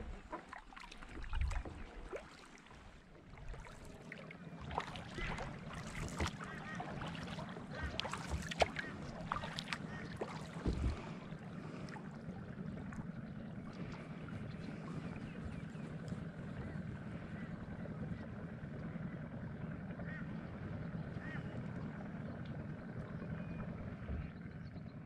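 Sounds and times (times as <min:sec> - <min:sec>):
water splashing from paddle: 0:00.0 - 0:19.0
water lapping against hull: 0:00.0 - 0:25.0.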